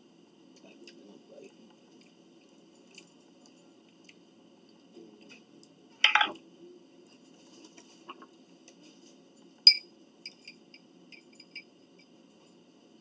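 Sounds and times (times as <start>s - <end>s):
metal fork clinking glass jar: 9.7s - 11.7s.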